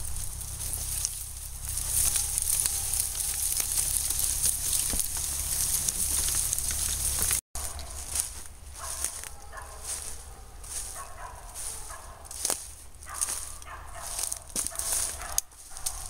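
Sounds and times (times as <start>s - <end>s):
footsteps crunching through leaves: 0.0s - 16.0s
steady low rumble: 0.0s - 16.0s
twigs crackling: 0.0s - 16.0s.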